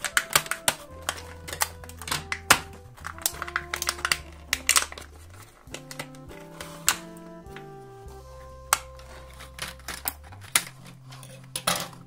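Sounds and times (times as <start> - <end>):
scissors snipping plastic packaging: 0.0 - 7.2
hard plastic clicking and crackling: 0.0 - 7.7, 8.7 - 12.0
background music with held notes: 0.0 - 12.0.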